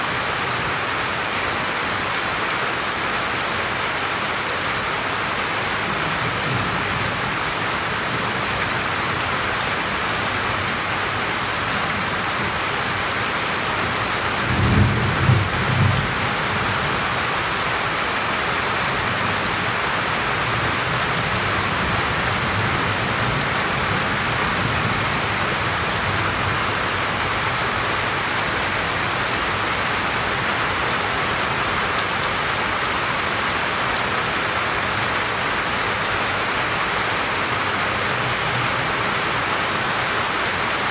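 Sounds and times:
heavy rain on roof and leaves: 0.0 - 40.9.

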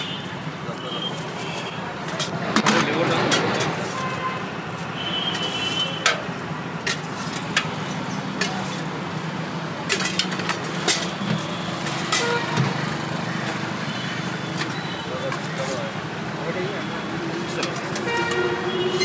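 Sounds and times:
road traffic hum: 0.0 - 19.0
ladles clinking against steel pots: 5.2 - 8.9, 9.8 - 12.6, 13.9 - 15.8, 17.4 - 19.0.

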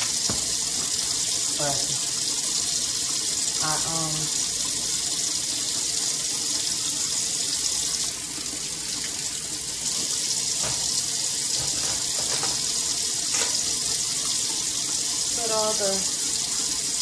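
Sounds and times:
faint knocks of items in sink: 0.0 - 0.6, 10.6 - 12.7
faucet running into sink: 0.0 - 17.0.

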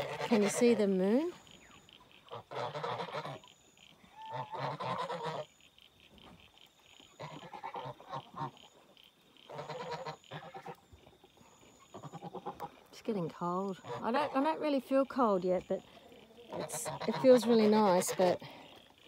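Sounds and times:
geese honking: 0.0 - 19.0.

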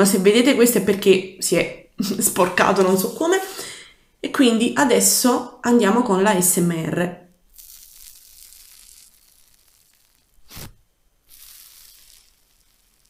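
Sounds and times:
slime crust crackling crunch: 7.5 - 10.7.

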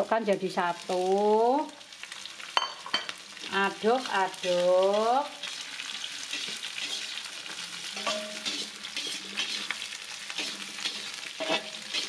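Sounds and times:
vegetables sizzling in hot oil: 0.0 - 12.0
metal spatula scraping wok: 6.2 - 12.0.

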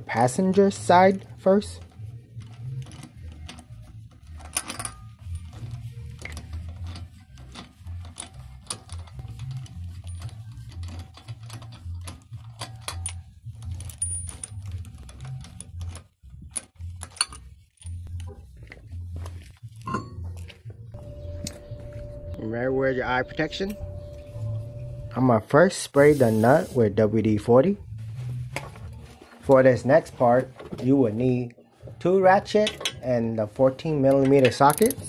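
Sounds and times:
low steady hum: 0.0 - 35.0
socket ratchet clicking: 34.3 - 35.0.

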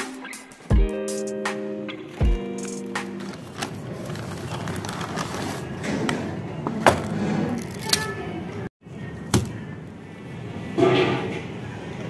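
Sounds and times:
paper bag rustling: 2.8 - 6.0.

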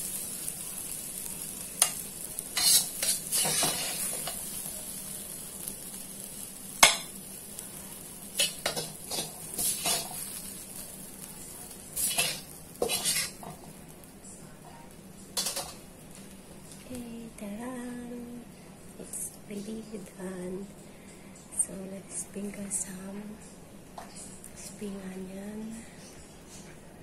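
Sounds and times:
faint sizzle from hot pan: 0.0 - 26.1
metal spatula scraping a wok: 1.8 - 4.5, 8.4 - 10.4, 12.0 - 13.5.

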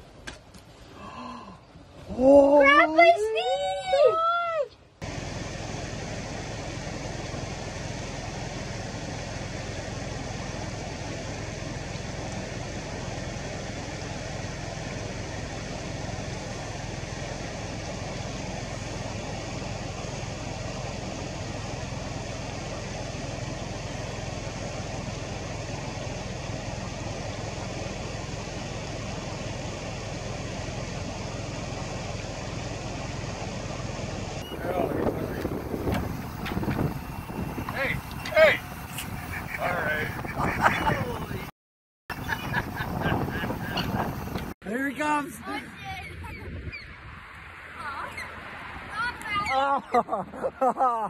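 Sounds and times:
engine idling: 5.0 - 41.5, 42.1 - 45.2.

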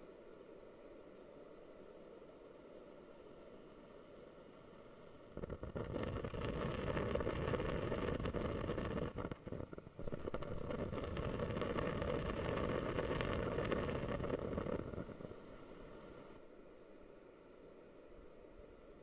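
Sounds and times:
humidifier bubbling: 5.2 - 16.4.

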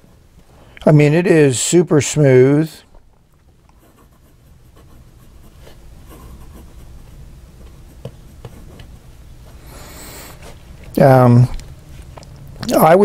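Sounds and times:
pen nib scratching on paper: 3.7 - 9.0.

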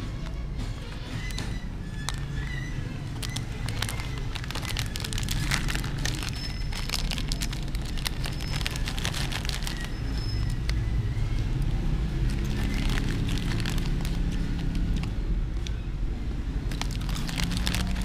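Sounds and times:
plastic packet crackling: 2.0 - 10.8, 12.1 - 15.8, 16.6 - 18.0.

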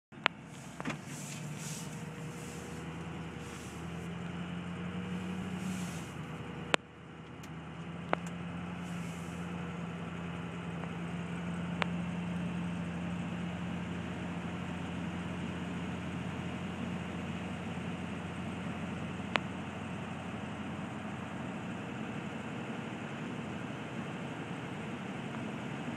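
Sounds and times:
truck engine running: 0.1 - 25.9
hiss: 0.5 - 4.1, 5.1 - 6.2, 8.8 - 9.5.

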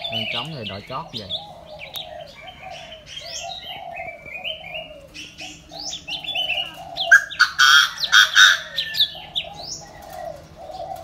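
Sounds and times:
dove cooing: 0.0 - 11.0
small birds chirping: 0.0 - 11.0.

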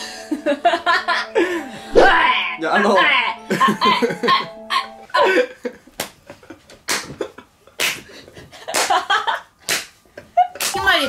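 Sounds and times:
man and woman laughing: 0.2 - 1.7, 3.4 - 9.6, 10.2 - 10.7.

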